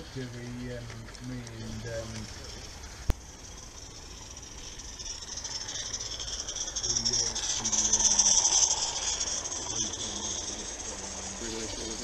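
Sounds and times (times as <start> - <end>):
steam hissing: 0.0 - 12.0
steam locomotive passing: 0.0 - 12.0.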